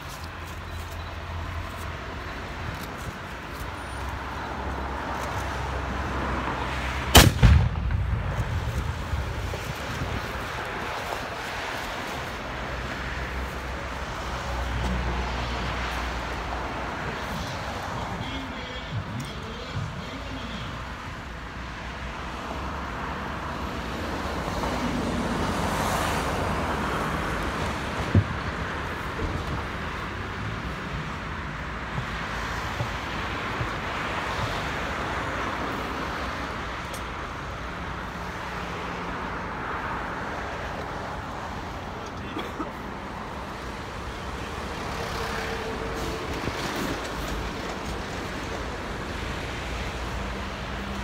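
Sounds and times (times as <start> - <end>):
rushing outdoor background noise: 0.0 - 51.0
cannon firing bang: 7.1 - 9.1
rumbling echo: 7.2 - 9.6.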